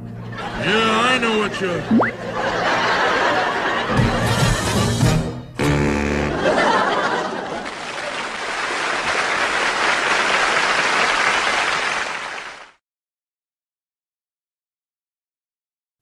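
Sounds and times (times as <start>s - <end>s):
audience laughing: 0.0s - 5.1s, 6.1s - 8.5s
saxophone note: 5.6s - 6.4s
audience applauding: 6.4s - 12.8s.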